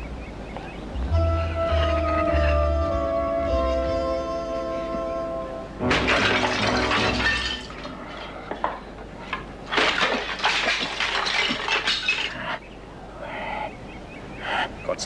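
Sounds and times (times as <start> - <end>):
glass shattering: 5.8 - 8.3, 9.7 - 12.4.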